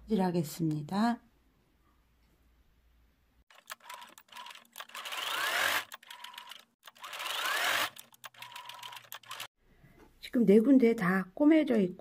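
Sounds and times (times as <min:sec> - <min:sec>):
electric sewing machine stitching: 0:03.5 - 0:09.5.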